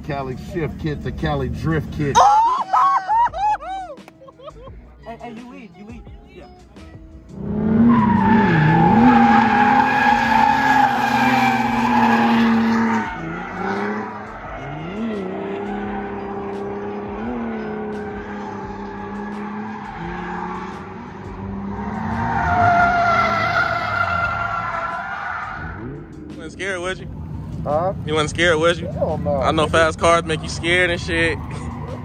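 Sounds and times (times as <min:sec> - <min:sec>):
car engine revving: 0:00.0 - 0:02.2, 0:07.1 - 0:32.0
tyres squealing: 0:07.8 - 0:25.8.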